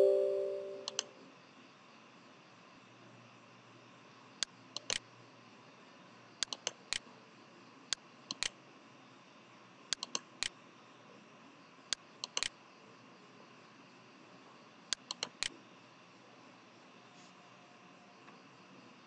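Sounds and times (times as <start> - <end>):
computer mouse clicks: 6.4 - 7.0, 8.3 - 8.5, 9.9 - 10.6, 12.2 - 12.6, 14.9 - 15.5.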